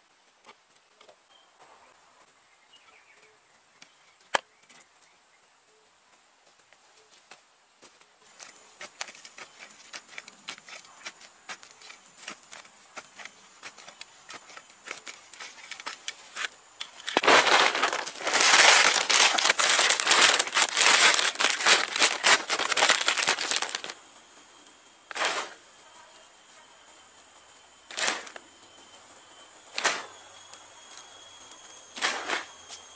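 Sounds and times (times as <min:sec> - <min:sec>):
trowel scraping dry soil: 0:08.3 - 0:24.0, 0:25.1 - 0:25.6, 0:27.9 - 0:28.4, 0:29.8 - 0:30.2, 0:32.0 - 0:32.5
plastic bag crinkling: 0:13.7 - 0:24.0.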